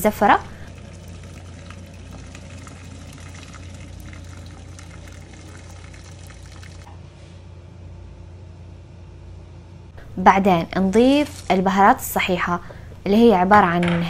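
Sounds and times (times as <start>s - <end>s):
low steady hum: 0.0s - 14.0s
water pouring into a pot: 0.4s - 6.9s.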